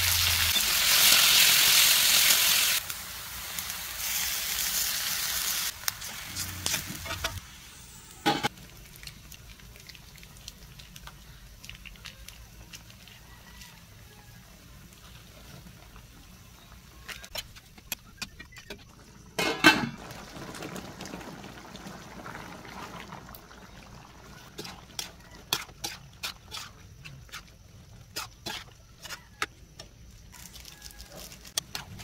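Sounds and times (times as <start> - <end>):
metal turner scraping wok: 5.9 - 7.4, 24.3 - 29.6
sauce bubbling: 17.6 - 29.3.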